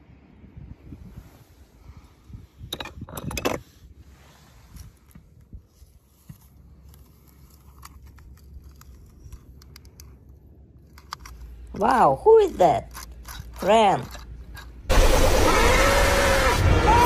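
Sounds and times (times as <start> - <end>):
toys clinking and clattering: 7.4 - 11.8, 12.4 - 14.9.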